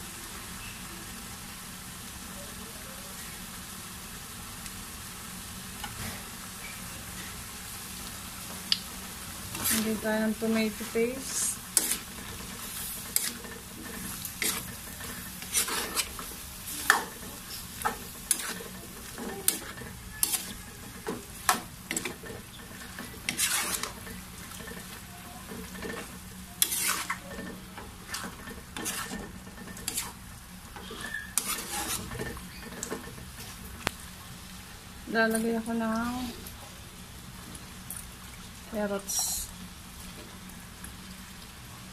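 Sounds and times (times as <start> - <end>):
food sizzling: 0.0 - 41.9
spatula scraping metal pan: 9.5 - 30.2, 30.8 - 33.6.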